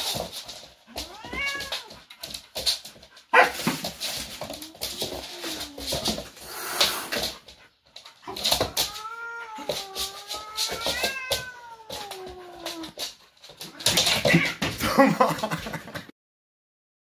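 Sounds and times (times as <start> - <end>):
cat yowling: 1.1 - 1.9, 8.7 - 12.8.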